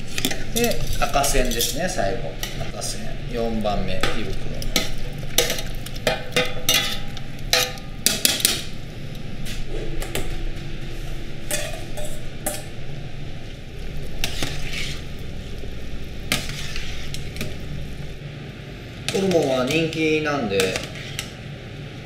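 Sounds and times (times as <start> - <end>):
steel kitchenware clanks: 4.0 - 8.6, 11.5 - 12.7
tongs scraping steel tray: 14.0 - 15.3, 16.2 - 18.0, 20.6 - 21.4.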